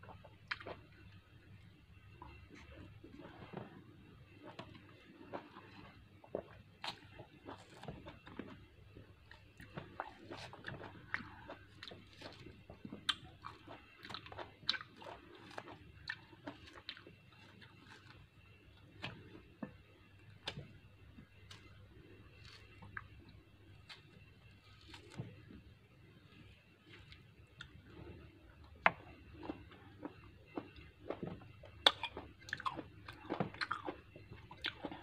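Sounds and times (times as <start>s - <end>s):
orange peel tearing: 22.3s - 23.1s, 23.7s - 25.3s
wet chewing: 28.9s - 35.0s.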